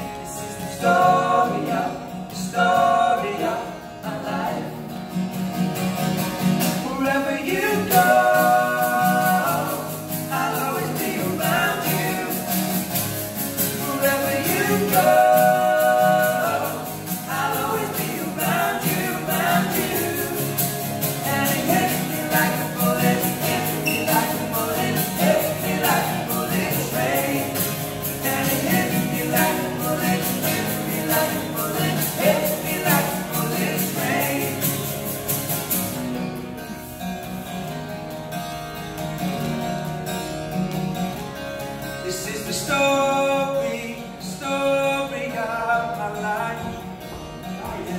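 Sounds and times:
men singing in harmony: 0.0s - 5.0s, 6.7s - 35.3s
acoustic guitars strumming: 0.0s - 47.9s.

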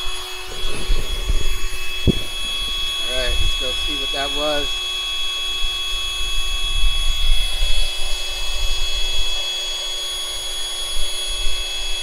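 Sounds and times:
faint high-pitched whine: 0.0s - 12.0s
wind buffeting microphone: 0.4s - 4.8s.

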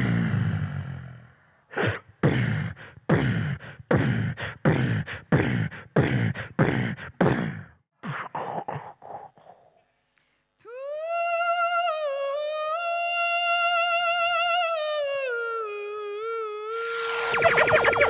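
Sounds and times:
beatboxing kick and snare beat: 2.2s - 7.7s
deep booming beatbox hit: 2.3s - 7.7s.

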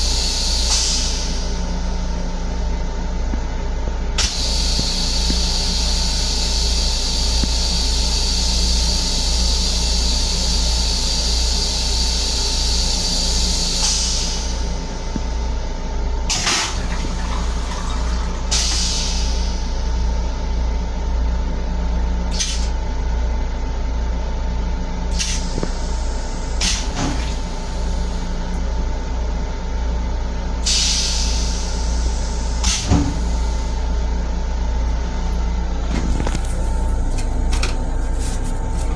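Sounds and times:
railcar low rumble: 0.0s - 38.9s
toilet flush click: 16.3s - 19.0s
toilet bowl emptying rush: 16.4s - 18.8s.

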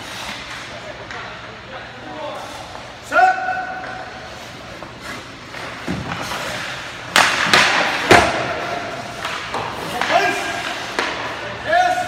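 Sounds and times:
hockey stick cracking on puck: 5.5s - 11.4s
puck hitting boards: 5.5s - 11.5s.

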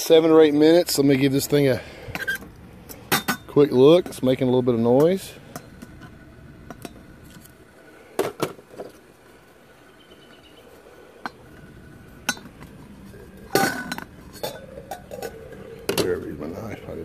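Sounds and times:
metal pot lid clinking: 13.5s - 16.1s.

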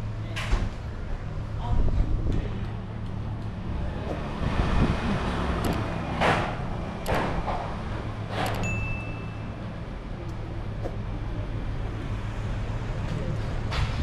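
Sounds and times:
vehicle engine humming: 0.0s - 14.0s
high steady tone: 8.6s - 9.7s.

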